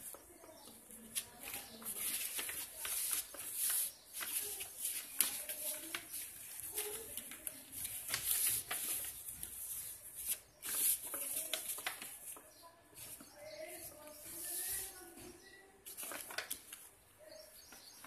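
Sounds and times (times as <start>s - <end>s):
paper rustling and crinkling: 0.0s - 18.0s.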